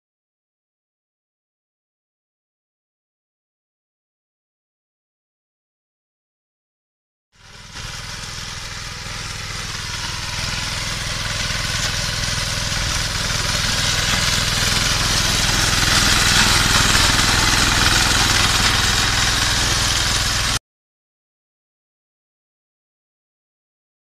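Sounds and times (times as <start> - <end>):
hiss of cutting machine: 7.4 - 20.6
small engine running steadily: 7.4 - 20.6.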